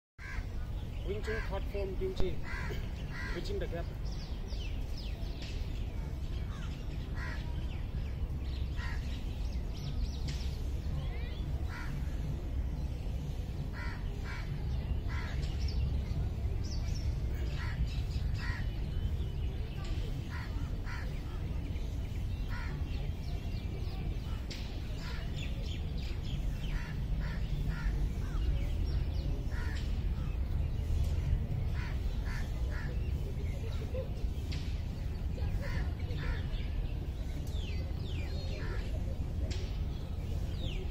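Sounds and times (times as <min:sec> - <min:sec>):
crows cawing: 0:02.4 - 0:03.4.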